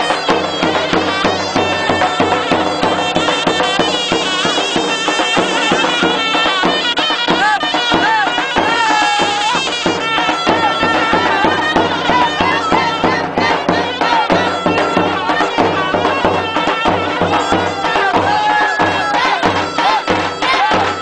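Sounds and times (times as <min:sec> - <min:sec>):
reedy wind melody: 0:00.0 - 0:21.0
steady drumbeat: 0:00.0 - 0:21.0.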